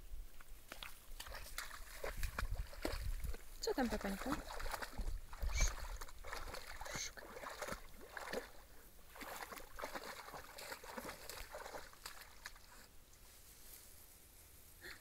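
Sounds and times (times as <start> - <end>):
dog splashing through water: 0.7 - 12.8
reed stems rustling: 9.1 - 14.9.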